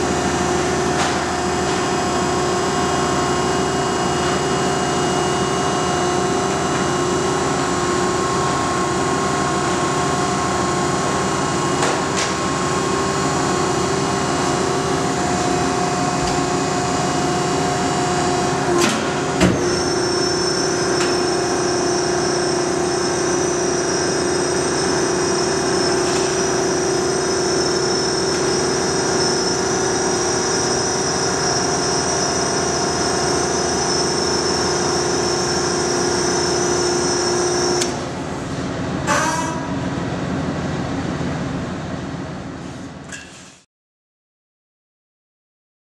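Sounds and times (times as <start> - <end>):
hydraulic power unit humming and whining: 0.0 - 43.6.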